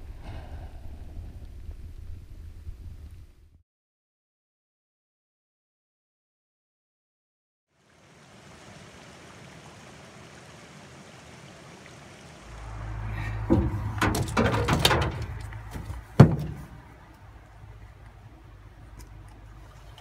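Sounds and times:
low rumble: 0:00.0 - 0:03.6
stream rushing over rocks: 0:07.8 - 0:18.0
fishing rod knocking on truck bed: 0:13.5 - 0:16.8.

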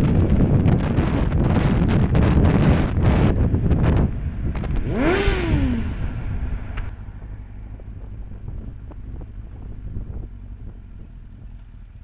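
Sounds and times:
wind rush: 0:00.0 - 0:11.2
motorcycle engine revving: 0:00.0 - 0:12.0.

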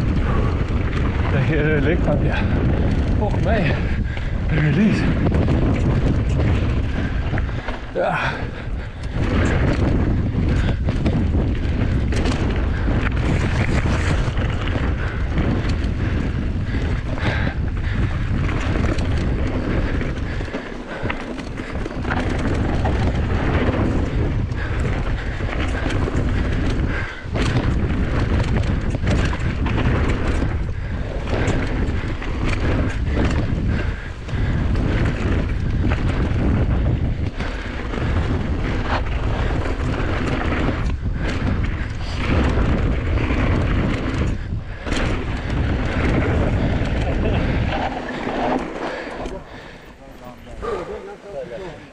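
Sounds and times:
bike knocking and rattling: 0:00.0 - 0:51.9
tyres on dirt: 0:00.0 - 0:51.9
wind rumble on microphone: 0:00.0 - 0:51.9.

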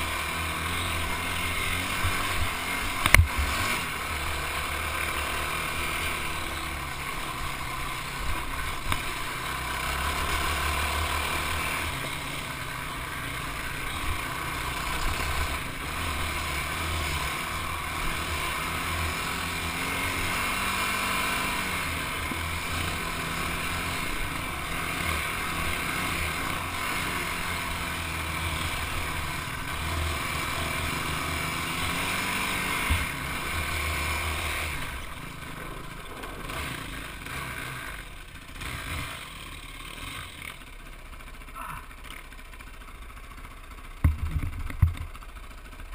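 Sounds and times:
quad engine running: 0:00.0 - 0:45.9
sharp knocks: 0:44.0 - 0:45.1.

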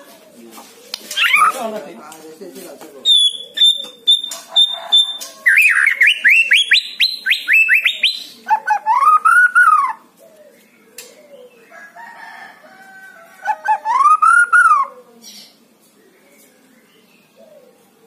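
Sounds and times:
bird singing whistled song: 0:03.0 - 0:10.0, 0:13.8 - 0:14.9.

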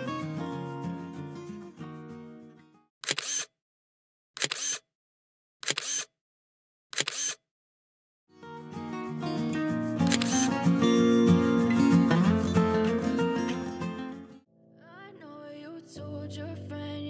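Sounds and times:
camera shutter clicks: 0:03.0 - 0:03.5, 0:04.4 - 0:04.9, 0:05.6 - 0:06.1, 0:06.9 - 0:07.4, 0:10.0 - 0:10.5
background music: 0:08.4 - 0:14.4.

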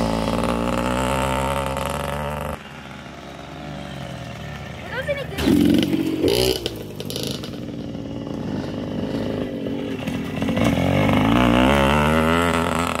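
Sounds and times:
dirt bike engine revving: 0:00.0 - 0:13.0.

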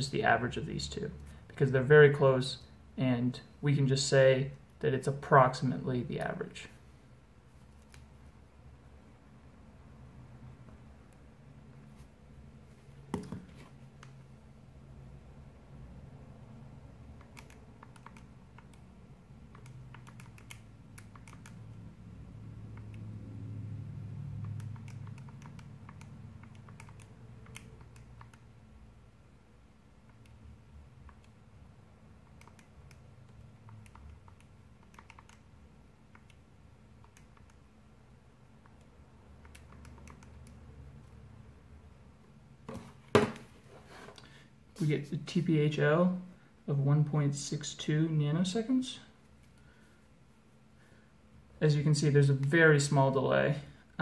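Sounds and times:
low steady hum: 0:00.0 - 0:54.0
calculator keys clicking: 0:19.5 - 0:21.7, 0:24.4 - 0:28.4, 0:32.2 - 0:35.5.

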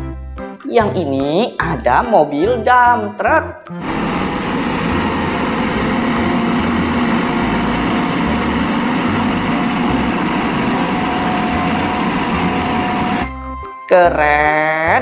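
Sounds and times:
hydraulic hoist raising bed: 0:03.8 - 0:13.3
soil being dumped: 0:03.8 - 0:13.3
truck engine running: 0:03.8 - 0:13.3.

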